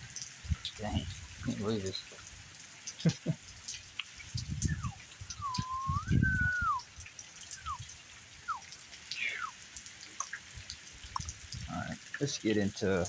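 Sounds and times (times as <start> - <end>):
rain falling with drips: 0.0 - 13.0
wavering whistled tone: 4.6 - 6.8, 7.6 - 7.8, 9.2 - 9.6.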